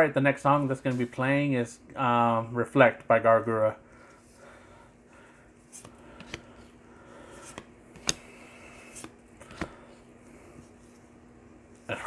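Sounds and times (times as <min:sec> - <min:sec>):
faint steady hum: 0:00.0 - 0:12.0
trading cards clicking and snapping: 0:07.4 - 0:08.3.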